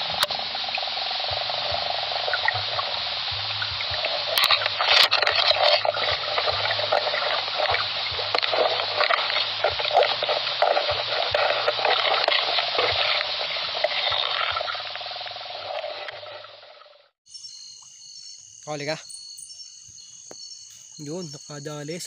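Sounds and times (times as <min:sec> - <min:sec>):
water sloshing and splashing: 0:00.0 - 0:17.1.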